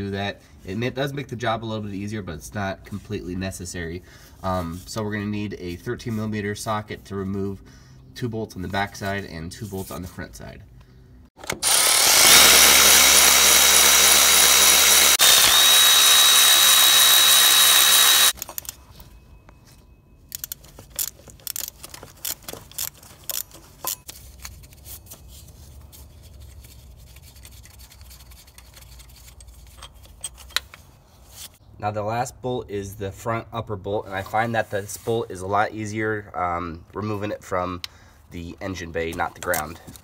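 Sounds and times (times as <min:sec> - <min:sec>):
cordless power tool spinning: 0:11.4 - 0:18.7
hand ratchet clicking: 0:11.6 - 0:18.7, 0:20.3 - 0:24.1.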